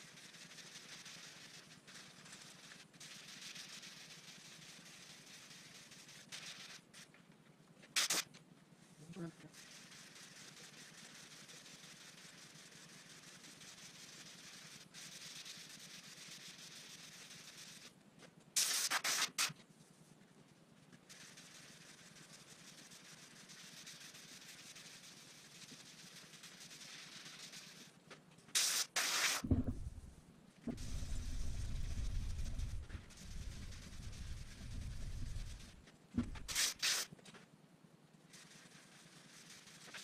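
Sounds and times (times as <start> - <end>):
loud hiss: 28.6 - 29.5, 36.4 - 37.1.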